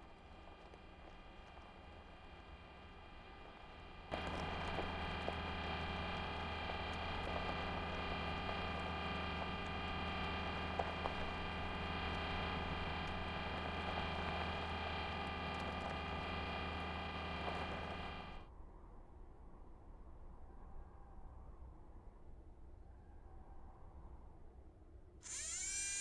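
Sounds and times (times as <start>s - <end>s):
faint clicks: 0.0s - 18.4s
machine hum: 0.0s - 18.4s, 25.3s - 26.0s.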